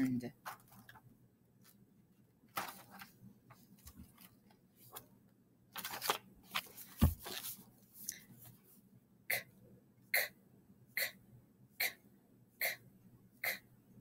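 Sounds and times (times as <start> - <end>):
rustling and clicks of handling: 0.4 - 1.8, 2.5 - 5.1.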